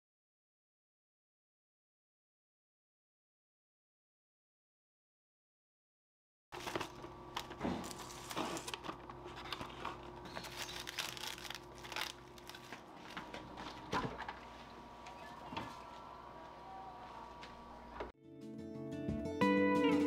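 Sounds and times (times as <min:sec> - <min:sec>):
plastic wrap crinkling: 0:06.6 - 0:14.8.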